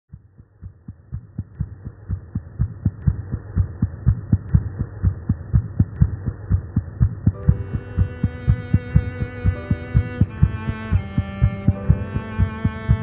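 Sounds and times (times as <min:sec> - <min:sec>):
heartbeat thumps: 0:00.1 - 0:13.0.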